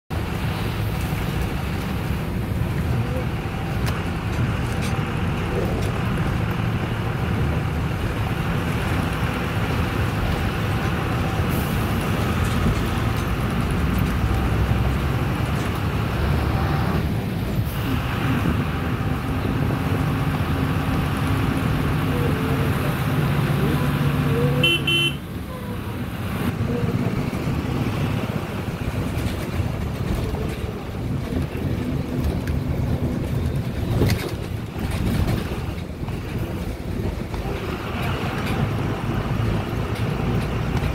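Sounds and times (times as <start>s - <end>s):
vehicle engine and road noise: 0.0s - 40.9s
short horn beep: 24.6s - 25.2s.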